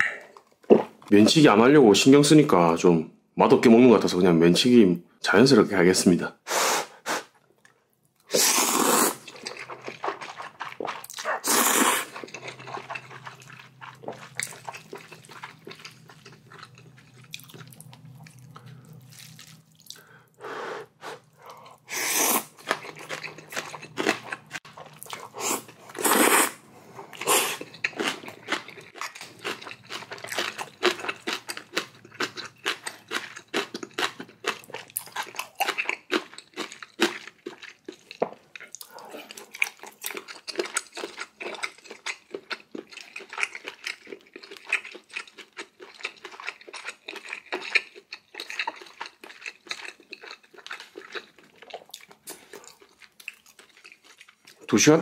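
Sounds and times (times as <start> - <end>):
noodle slurping: 8.3 - 14.4, 25.2 - 27.7
wet chewing and lip-smacking: 9.1 - 20.1, 27.1 - 54.7.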